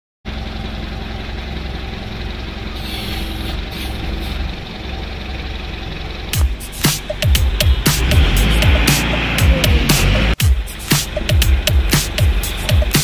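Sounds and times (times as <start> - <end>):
diesel engine running: 0.3 - 13.0
hiss: 2.8 - 4.4.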